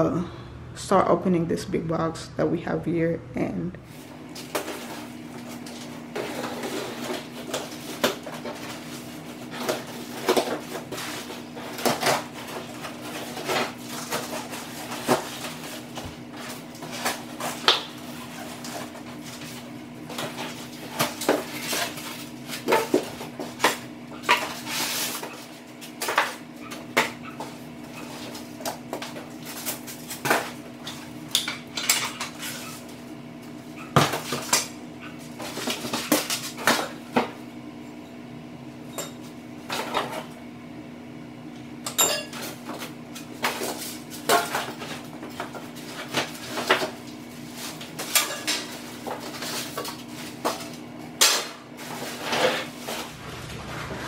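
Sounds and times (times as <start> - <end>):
cardboard and styrofoam rustling: 3.9 - 26.0, 42.8 - 50.8, 51.8 - 54.0.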